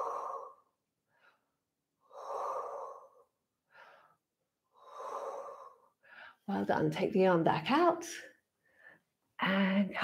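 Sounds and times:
woman breathing: 0:00.0 - 0:06.5, 0:08.5 - 0:10.0.

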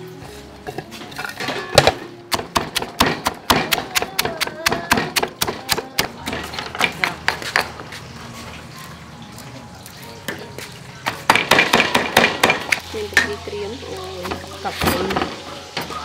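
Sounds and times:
stone pestle pounding in mortar: 0:01.8 - 0:07.7, 0:11.3 - 0:12.8.

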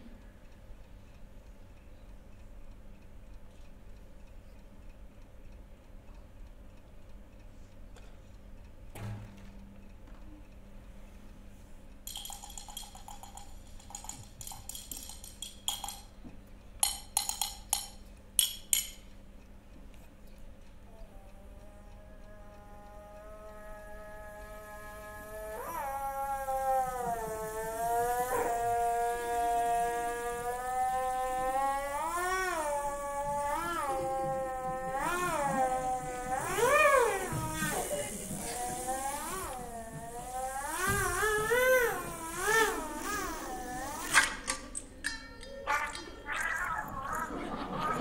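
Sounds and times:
faint light ticking: 0:00.0 - 0:12.1, 0:13.0 - 0:40.8
long drawn-out howl: 0:21.3 - 0:37.6.

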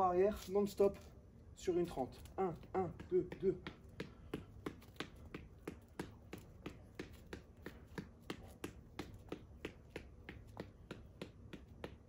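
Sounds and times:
fists punching a ball: 0:02.8 - 0:12.0.

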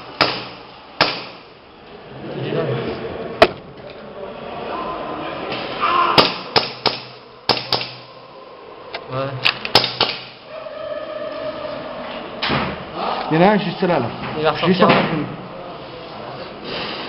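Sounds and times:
airsoft gun shots: 0:06.2 - 0:08.0.

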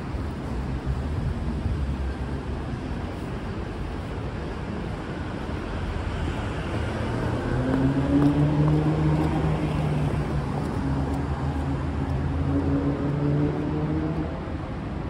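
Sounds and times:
road noise: 0:00.0 - 0:15.0
vehicle engine humming: 0:04.8 - 0:14.5.

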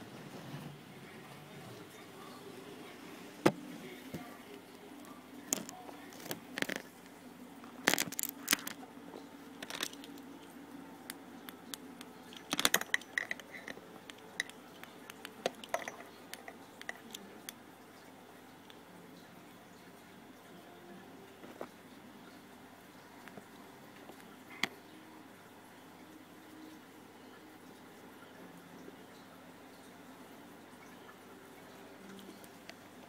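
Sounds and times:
faint steady hum: 0:00.0 - 0:33.0
handling clicks and rustles: 0:12.3 - 0:17.3.

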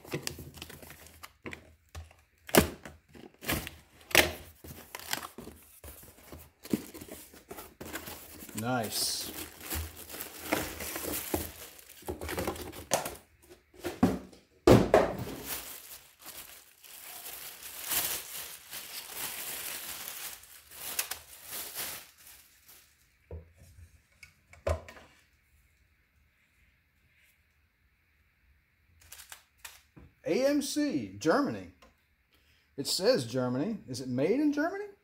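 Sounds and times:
plastic bag crinkling: 0:00.0 - 0:01.6, 0:03.1 - 0:13.2, 0:15.2 - 0:23.0
cardboard box rustling: 0:03.1 - 0:14.2.

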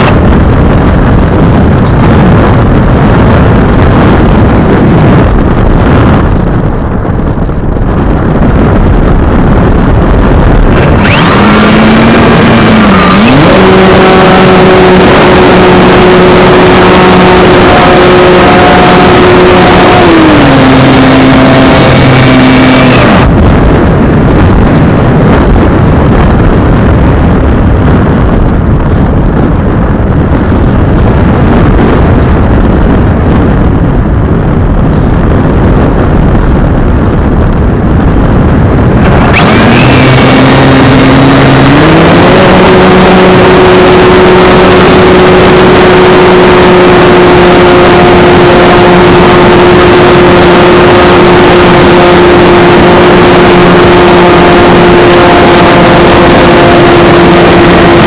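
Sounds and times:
airflow rushing past microphone: 0:00.0 - 0:58.0
electric motor whine: 0:10.6 - 0:23.4, 0:39.0 - 0:58.0.

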